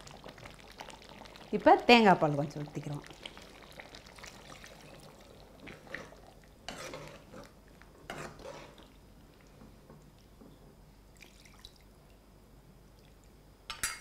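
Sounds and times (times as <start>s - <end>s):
liquid sloshing in pot: 3.0s - 10.4s
metal ladle scraping pot: 6.7s - 8.9s.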